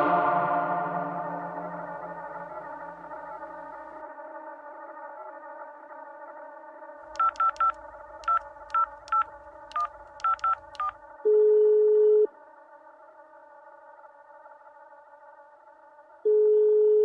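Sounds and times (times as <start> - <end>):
steady low hum: 0.0 - 4.0
steady telephone tone: 7.2 - 12.3, 16.3 - 17.0
telephone dialing beeps: 7.2 - 12.3.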